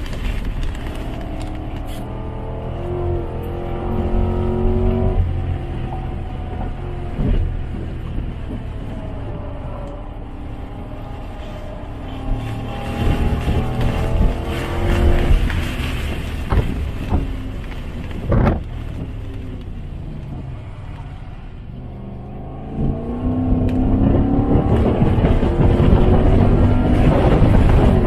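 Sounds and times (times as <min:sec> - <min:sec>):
car engine accelerating: 0:00.0 - 0:28.0.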